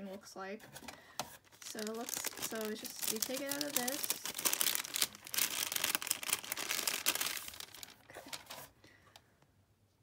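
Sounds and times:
plastic sleeve crinkling: 0:01.4 - 0:08.7.

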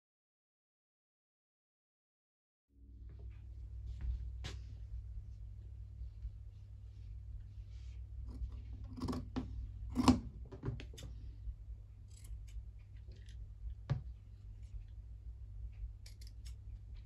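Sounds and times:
scissors snipping through felt: 0:12.1 - 0:13.0, 0:16.0 - 0:16.6.

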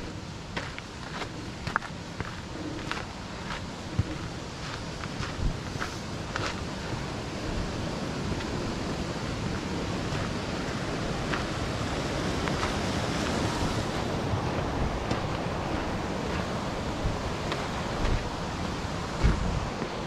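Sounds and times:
stream water rushing: 0:00.0 - 0:20.0
footsteps on trail: 0:00.5 - 0:08.6, 0:12.3 - 0:20.0.

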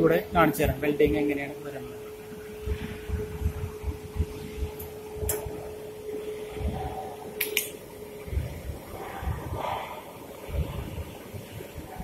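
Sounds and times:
steady whine: 0:00.0 - 0:12.0
sharp clicks: 0:07.4 - 0:07.8.

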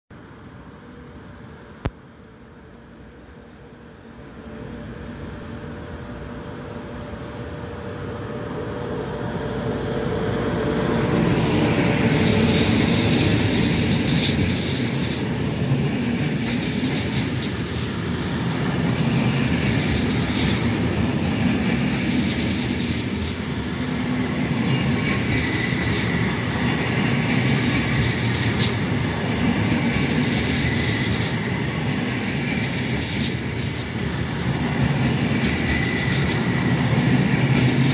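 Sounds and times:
steel wheels rumbling on rail: 0:00.2 - 0:37.9
high wheel squeal: 0:24.1 - 0:26.9.

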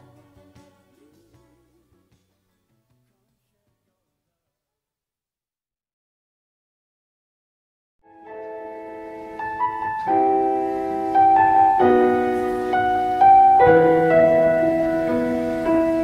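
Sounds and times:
slow keyboard chords: 0:08.1 - 0:16.0.

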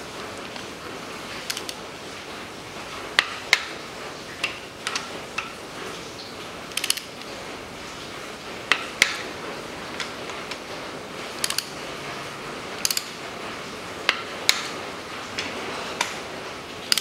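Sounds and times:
torque wrench clicking: 0:06.7 - 0:07.1, 0:11.4 - 0:11.8, 0:12.8 - 0:13.2.

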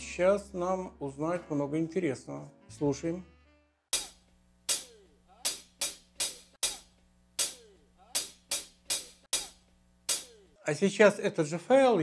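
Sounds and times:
cymbal and hi-hat strikes: 0:04.0 - 0:10.6.

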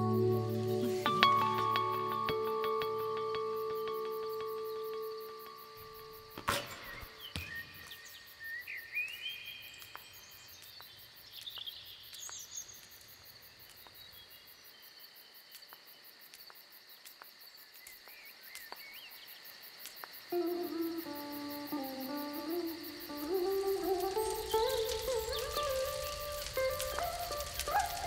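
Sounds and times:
bird chirps: 0:00.0 - 0:12.9, 0:23.4 - 0:28.0
insect chorus: 0:00.0 - 0:28.0.

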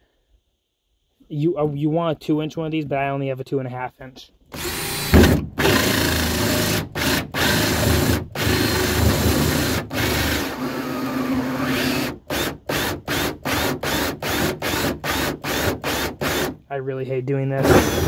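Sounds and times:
drill cutting through plastic: 0:04.5 - 0:16.6, 0:17.6 - 0:18.0.

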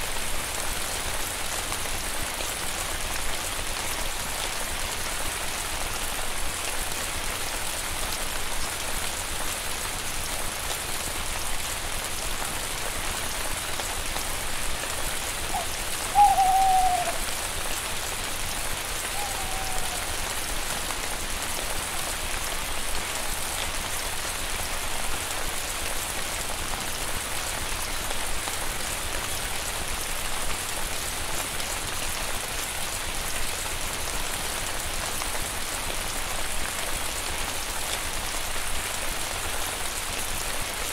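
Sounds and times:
steady rain falling: 0:00.0 - 0:40.9
short call falling in pitch: 0:15.6 - 0:17.2.

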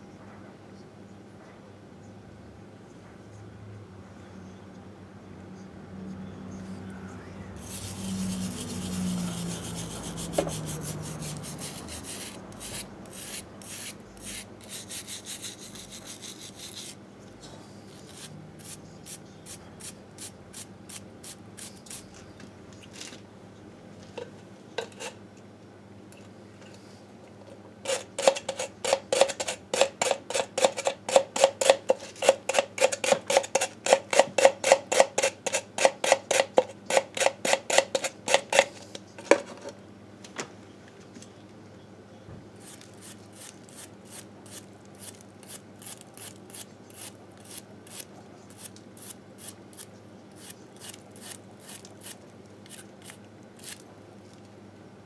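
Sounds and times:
hand scrubbing metal: 0:07.6 - 0:17.0.

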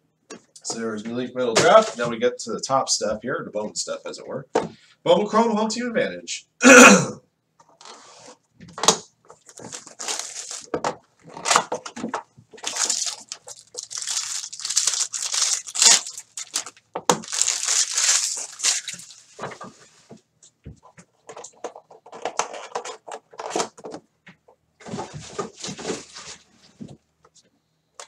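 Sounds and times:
plastic wrapping tearing: 0:09.4 - 0:11.8, 0:12.6 - 0:19.4
foil pack ripping open: 0:09.5 - 0:10.7, 0:12.6 - 0:19.3.

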